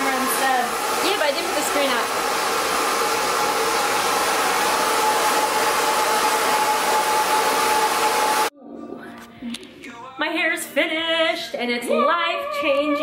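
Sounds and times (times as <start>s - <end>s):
hair dryer blowing: 0.0s - 8.5s.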